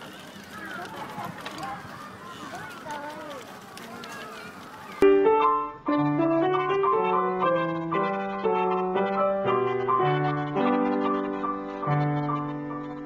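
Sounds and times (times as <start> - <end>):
piano melody over low chords: 5.0 - 13.0.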